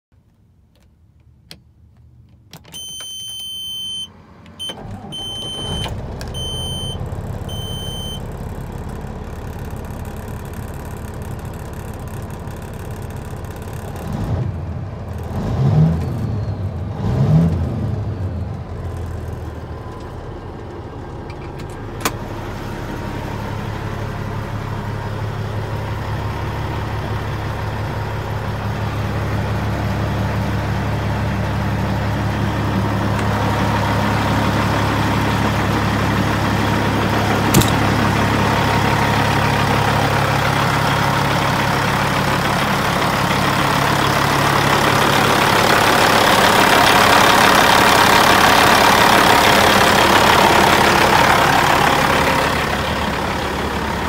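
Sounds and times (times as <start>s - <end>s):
diesel engine idling and revving: 1.9s - 54.0s
dash warning beeps: 2.7s - 8.3s.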